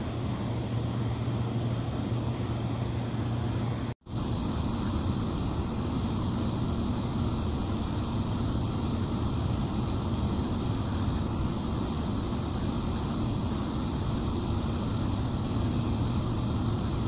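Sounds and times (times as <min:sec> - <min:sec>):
cooling blowers rushing hum: 0:00.0 - 0:17.0.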